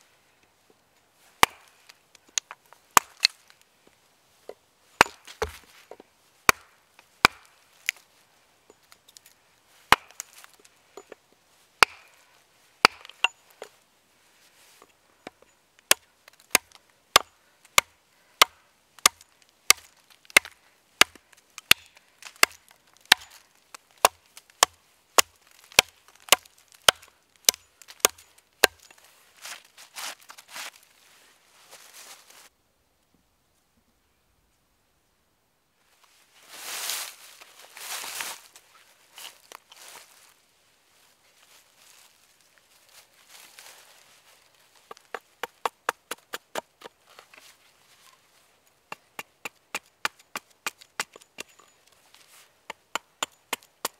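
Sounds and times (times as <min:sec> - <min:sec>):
hatchet chopping into log: 0:01.4 - 0:01.7, 0:05.0 - 0:05.6, 0:06.5 - 0:07.5, 0:09.9 - 0:10.3, 0:11.8 - 0:12.1, 0:12.8 - 0:13.3, 0:15.9 - 0:23.3, 0:24.0 - 0:28.8, 0:44.9 - 0:46.9.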